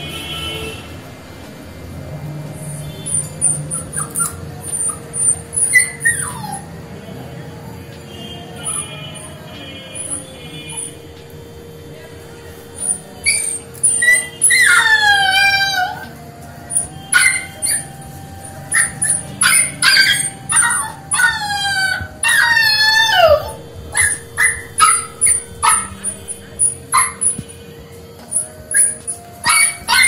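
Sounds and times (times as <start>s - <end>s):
puppies whining: 2.4s - 30.0s
puppies yelping: 2.6s - 6.8s, 8.5s - 11.3s, 12.7s - 27.6s, 28.2s - 30.0s.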